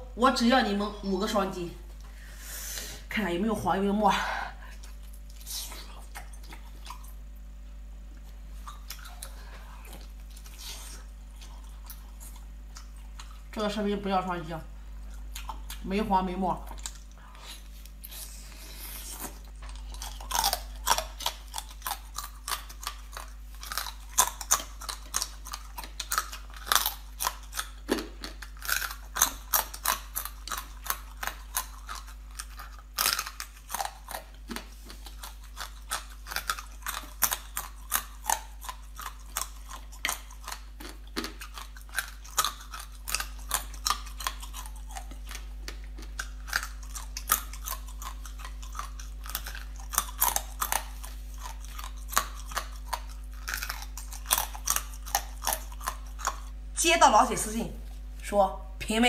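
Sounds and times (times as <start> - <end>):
chewing crunchy crab shells: 4.5 - 13.6, 14.7 - 56.8.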